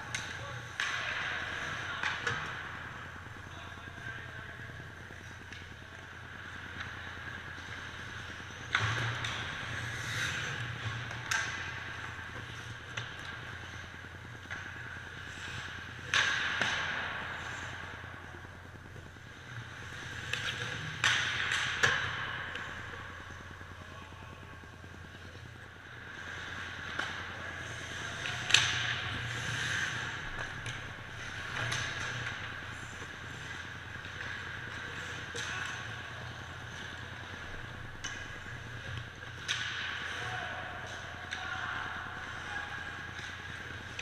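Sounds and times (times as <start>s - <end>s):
skates scraping ice: 0.0s - 18.4s, 26.0s - 44.0s
hockey sticks and puck clacking: 0.0s - 44.0s.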